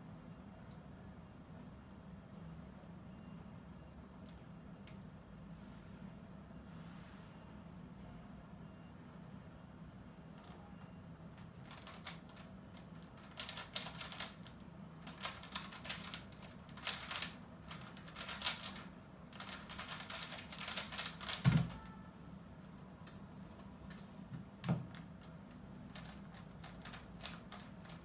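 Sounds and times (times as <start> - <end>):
speedcube turning clatter: 11.6 - 21.6, 25.5 - 28.0.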